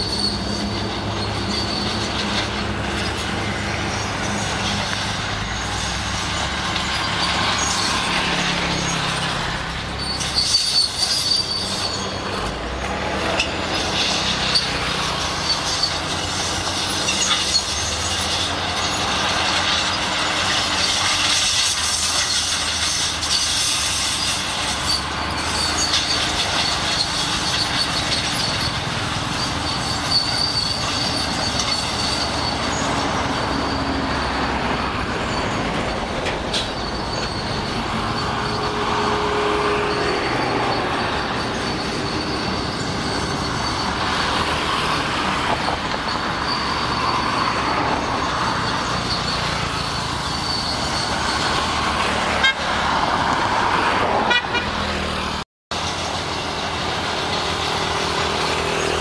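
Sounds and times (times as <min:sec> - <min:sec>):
bulldozer running: 0:00.0 - 0:59.0
road traffic passing: 0:00.0 - 0:59.0
vehicle horn: 0:52.3 - 0:52.8, 0:54.2 - 0:54.9.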